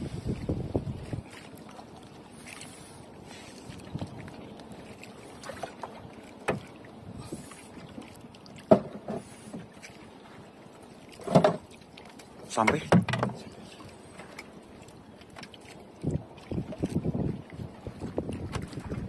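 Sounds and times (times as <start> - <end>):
water lapping against hull: 0.0 - 19.0.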